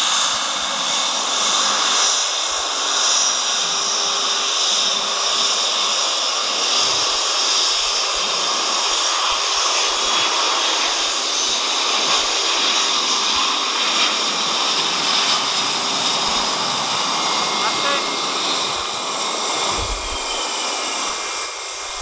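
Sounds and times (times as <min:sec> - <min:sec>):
faint high engine whine: 0:00.0 - 0:22.0
jet engines rushing: 0:00.0 - 0:22.0.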